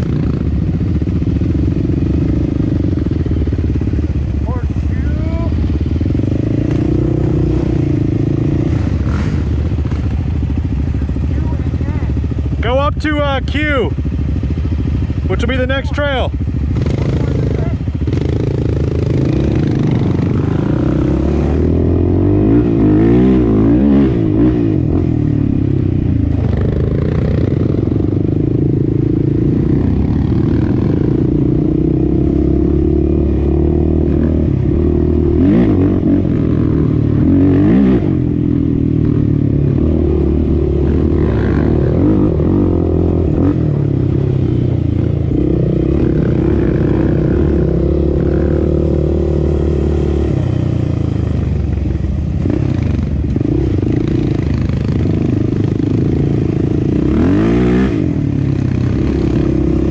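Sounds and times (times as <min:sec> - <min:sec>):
quad engine revving: 0:04.4 - 0:10.3, 0:16.7 - 0:51.6, 0:52.4 - 0:59.9.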